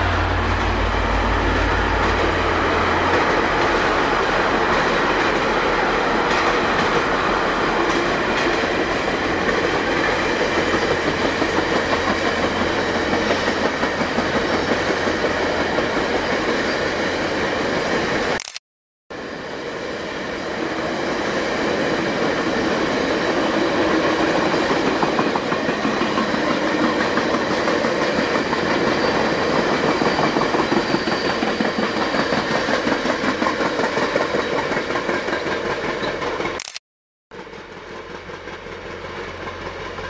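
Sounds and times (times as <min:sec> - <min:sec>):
train wheels clicking over rail joints: 0:00.4 - 0:16.6, 0:22.1 - 0:36.6.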